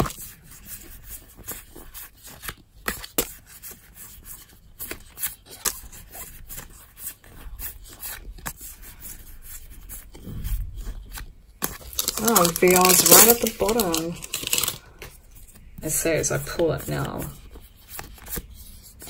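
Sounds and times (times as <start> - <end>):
trading cards being flipped: 10.8 - 15.6, 17.4 - 19.0.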